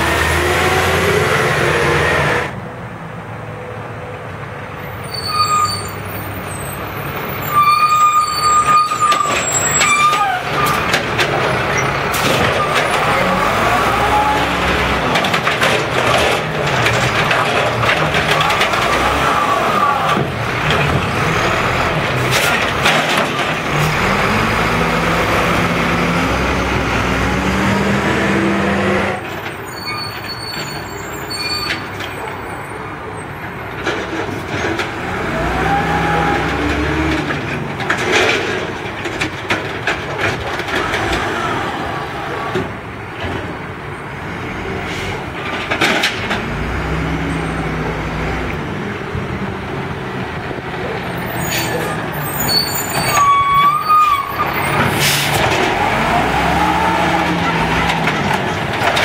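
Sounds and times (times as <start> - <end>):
garbage truck diesel engine revving: 0.0 - 2.6, 10.4 - 29.4, 34.0 - 42.9, 43.5 - 53.2, 54.3 - 59.0
air brakes hissing: 54.9 - 55.4.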